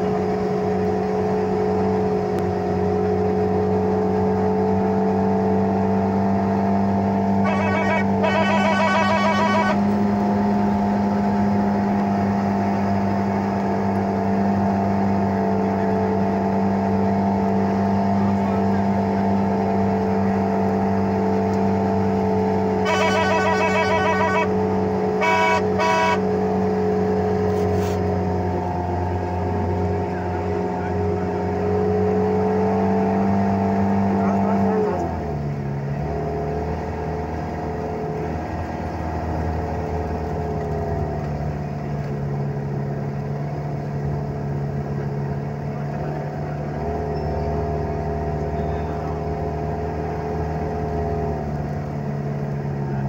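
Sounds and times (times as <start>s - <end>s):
vehicle engine running: 0.0s - 53.0s
vehicle horn blasts and toots: 7.4s - 10.1s, 22.8s - 26.4s.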